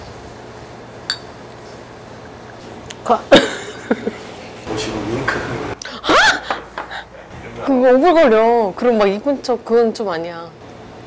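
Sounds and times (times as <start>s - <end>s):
room hum: 0.0s - 11.0s
glass clicking: 1.1s - 1.3s.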